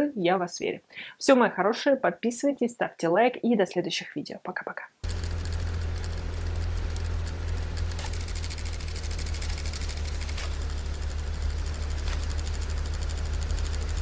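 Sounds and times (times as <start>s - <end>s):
fast buzzing crackle: 5.0s - 14.0s
steady low hum: 5.0s - 14.0s.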